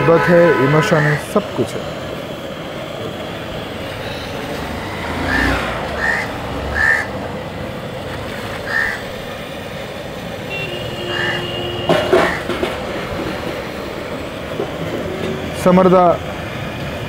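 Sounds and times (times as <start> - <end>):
outdoor street background: 0.0 - 17.0
metal bowls clattering: 11.8 - 13.6.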